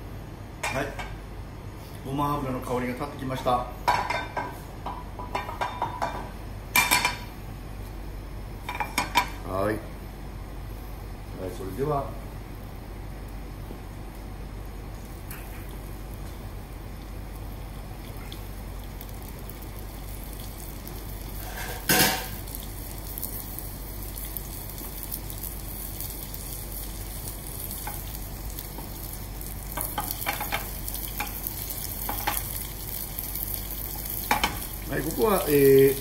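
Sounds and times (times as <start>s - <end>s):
fish sizzling in a frying pan: 16.6s - 36.0s.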